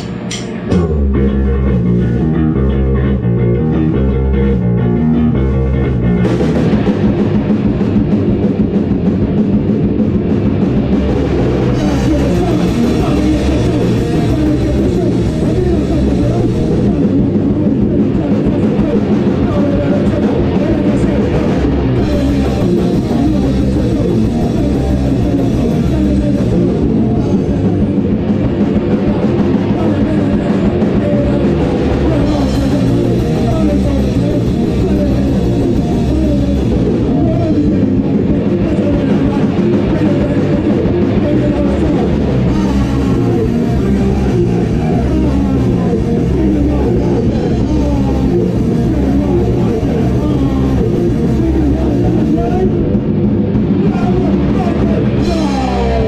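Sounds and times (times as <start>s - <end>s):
drum kit: 0.0s - 56.0s
electric guitar: 0.0s - 56.0s
person singing into a microphone: 11.8s - 53.0s, 53.7s - 56.0s.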